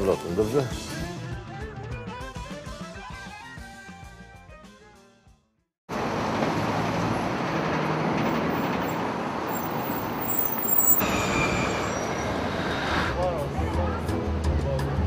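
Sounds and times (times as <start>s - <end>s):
city street traffic roar: 5.9s - 15.0s
high squeal: 9.5s - 13.2s.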